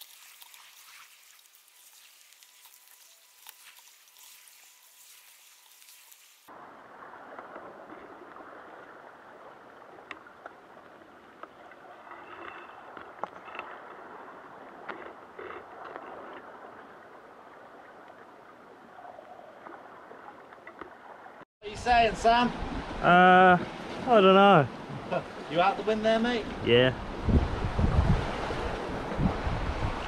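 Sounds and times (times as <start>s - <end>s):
fine crackling hiss: 0.0s - 7.7s.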